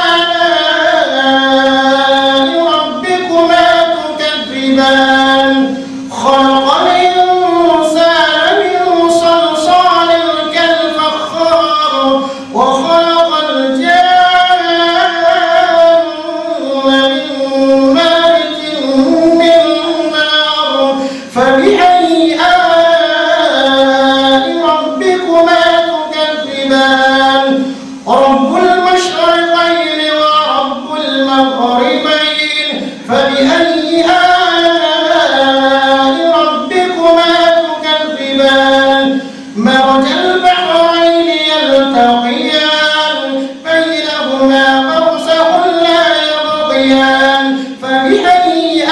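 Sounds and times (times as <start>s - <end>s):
man reciting melodically into microphone: 0.0s - 48.9s.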